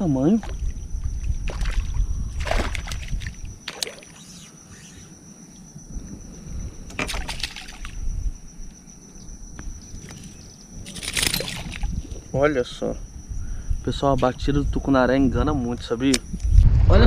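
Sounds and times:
fish splashing at water surface: 1.5s - 4.1s, 7.0s - 8.0s.

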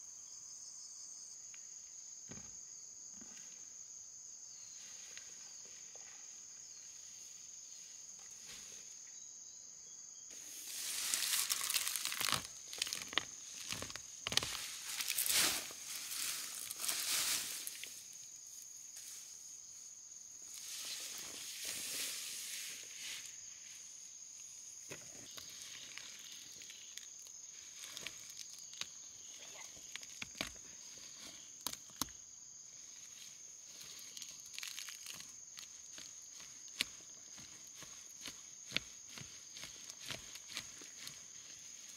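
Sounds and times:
insects chirring: 0.0s - 41.9s
rustling and crackling: 10.4s - 18.2s.

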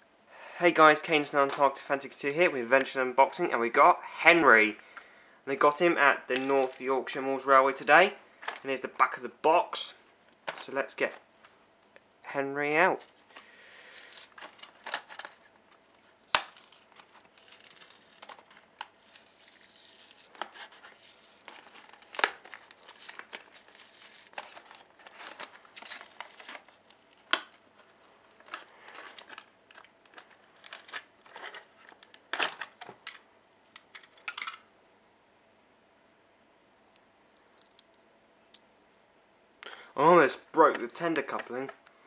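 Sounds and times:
packaging being crinkled: 13.0s - 34.5s.

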